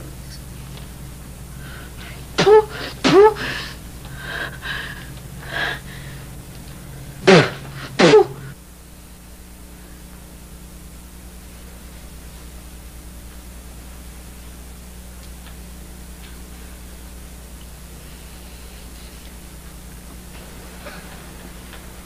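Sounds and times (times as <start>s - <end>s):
person making falling vocal sounds: 2.4s - 4.8s, 7.3s - 8.5s.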